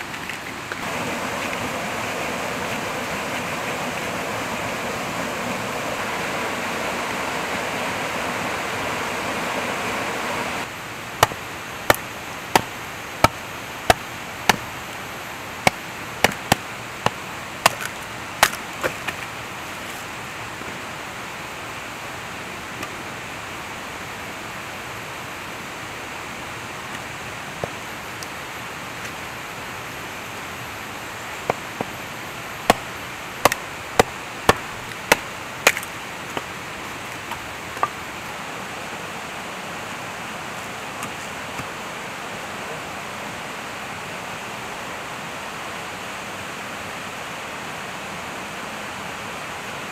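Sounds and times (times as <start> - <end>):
river water rushing: 0.0 - 49.9
machete splitting firewood: 11.2 - 14.7, 15.6 - 19.3, 32.7 - 36.5.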